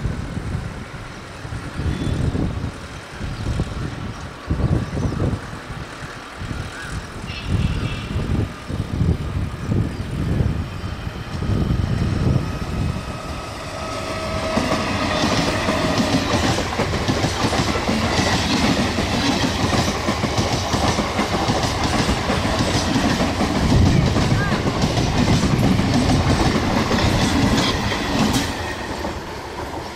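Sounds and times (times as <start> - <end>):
train wheels clattering over rail joints: 12.2 - 29.9.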